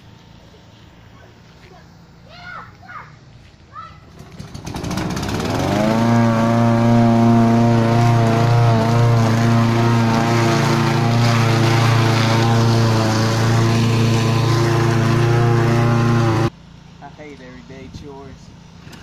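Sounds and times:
lawn mower engine running: 4.0 - 19.0.

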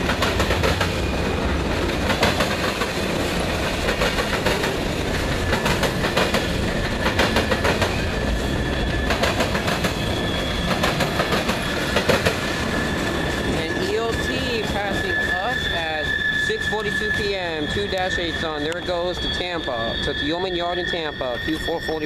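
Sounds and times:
train wheels clattering over rail joints: 0.0 - 8.2, 8.8 - 13.6
freight train rumble: 0.0 - 22.0.

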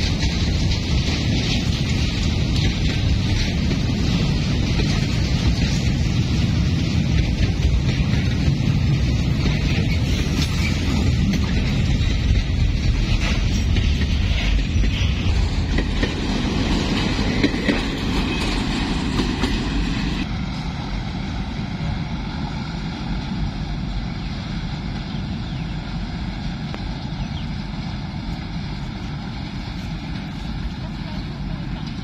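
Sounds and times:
train wheels clattering over rail joints: 0.0 - 20.3
train rumble: 0.0 - 32.0.

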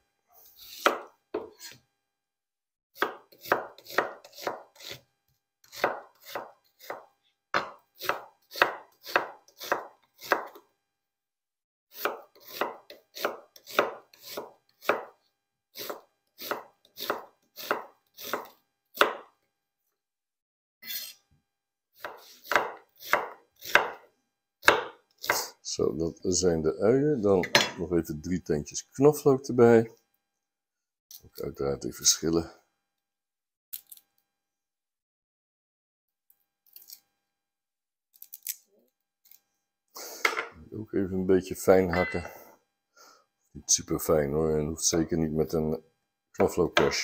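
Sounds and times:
knife chopping on wooden board: 0.7 - 1.8, 3.0 - 10.6, 12.0 - 15.2, 15.8 - 19.3, 22.0 - 25.5, 46.4 - 47.0.

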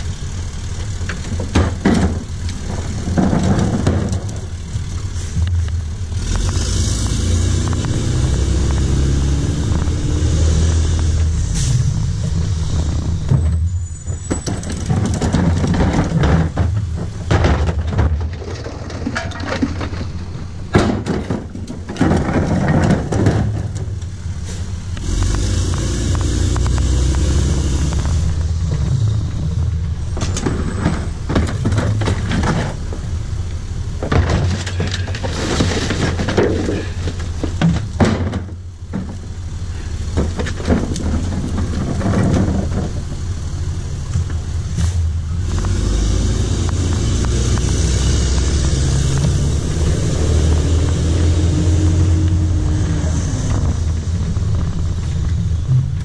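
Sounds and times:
truck engine rumbling: 0.0 - 56.0
recyclables clattering and rustling: 14.2 - 24.0.

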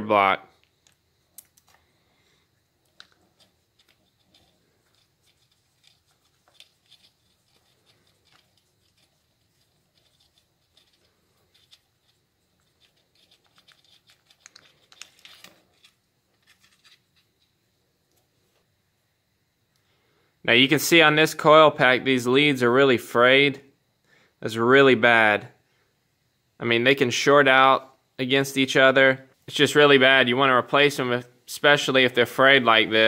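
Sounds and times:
faint clicks and scrapes of tools: 0.6 - 2.0, 2.8 - 18.6.

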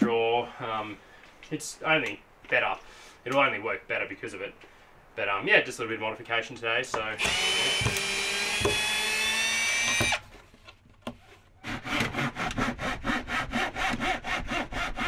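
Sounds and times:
cordless drill driving a screw: 7.2 - 10.2
hand saw cutting wood: 7.2 - 10.3, 11.6 - 15.0.

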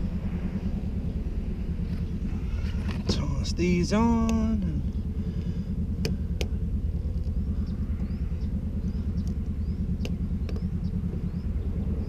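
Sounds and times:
engine idling: 0.0 - 12.0
wiper blade clicks: 4.2 - 4.7.

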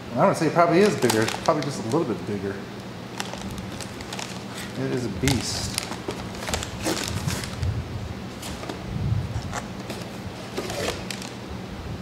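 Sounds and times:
steady low hum: 0.0 - 12.0
cardboard packaging rustling: 0.7 - 2.3, 3.0 - 7.7, 8.3 - 11.4
plastic bag crinkling: 0.7 - 7.7, 9.4 - 11.4.

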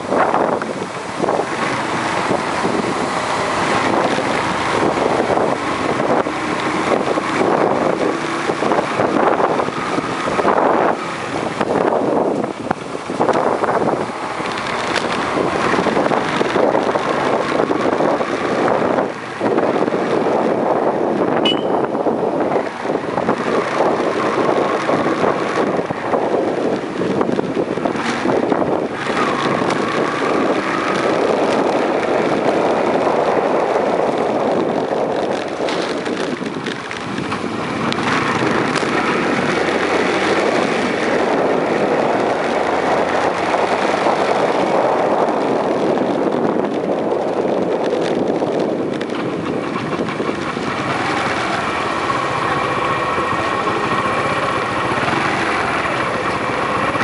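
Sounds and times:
wind rushing over microphone: 0.0 - 57.0
motorcycle engine running: 21.5 - 57.0.

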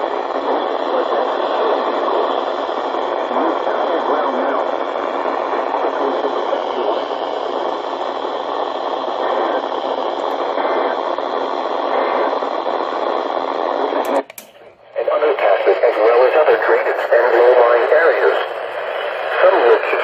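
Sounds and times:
radio static hissing: 0.0 - 20.0
radio switch click: 14.0 - 14.8.

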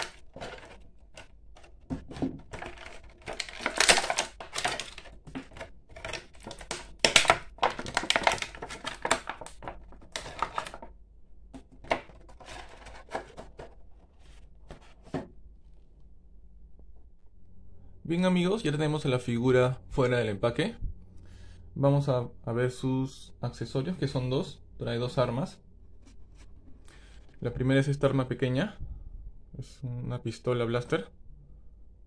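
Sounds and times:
plastic packaging crinkling: 0.0 - 11.0, 11.6 - 15.2.

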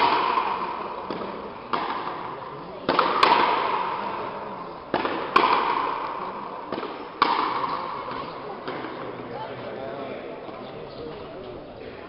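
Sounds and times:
ball cracking off rackets: 0.0 - 9.2
ball slapping a wall: 4.9 - 6.1, 6.7 - 8.9.

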